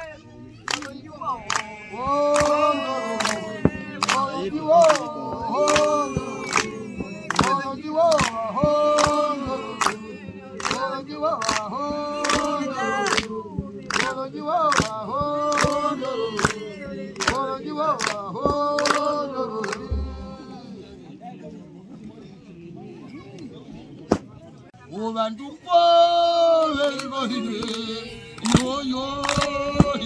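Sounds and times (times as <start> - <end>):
hands clapping on a beat: 0.6 - 20.2, 26.6 - 30.0
women singing unaccompanied: 0.7 - 20.8, 26.3 - 30.0.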